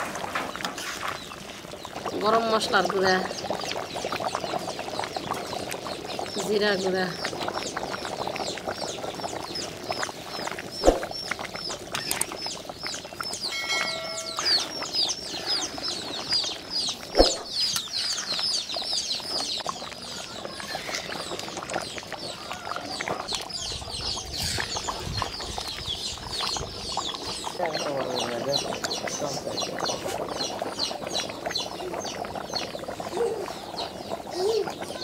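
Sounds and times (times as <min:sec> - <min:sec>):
birds chirping: 0:01.2 - 0:35.0
brief pitched tone: 0:13.5 - 0:14.9.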